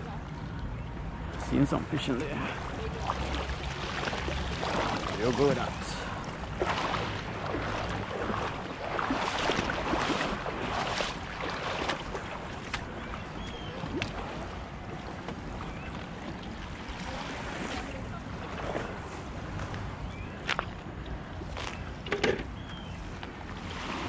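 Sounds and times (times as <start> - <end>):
shallow seawater splashing: 1.4 - 19.6, 23.1 - 24.0.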